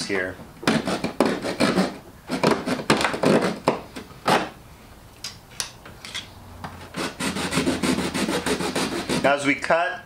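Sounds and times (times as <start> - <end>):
saw rasping strokes: 0.7 - 3.6, 6.9 - 9.7.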